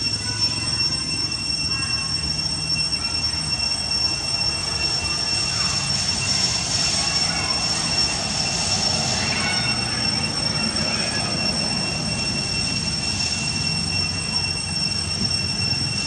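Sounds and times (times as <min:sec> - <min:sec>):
cicadas whining: 0:00.0 - 0:16.0.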